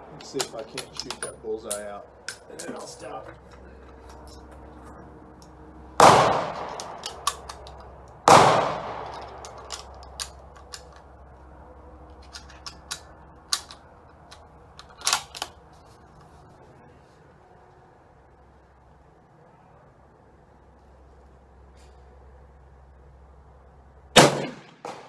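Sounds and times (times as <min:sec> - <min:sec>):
rifle shots ringing: 0:06.0 - 0:07.6, 0:08.2 - 0:09.8, 0:24.2 - 0:25.0.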